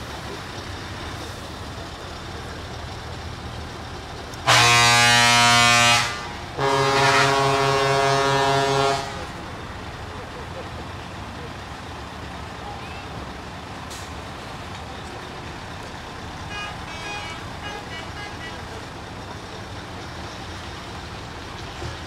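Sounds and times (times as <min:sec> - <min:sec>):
truck engines and traffic rumble: 0:00.0 - 0:22.0
truck air horn blasts: 0:04.4 - 0:09.4, 0:16.5 - 0:18.8.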